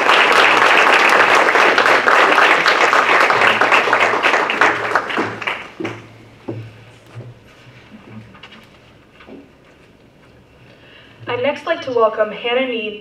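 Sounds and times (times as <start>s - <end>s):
audience applauding: 0.0s - 6.1s
knocks: 5.2s - 7.4s.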